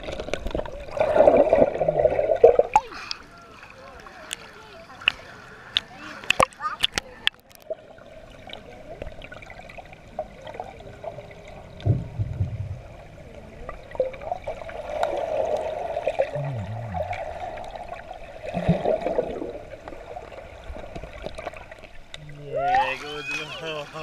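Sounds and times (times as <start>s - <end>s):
low underwater bumps: 0.0s - 3.0s, 11.0s - 22.5s
underwater gurgling and bubbles: 0.0s - 24.0s.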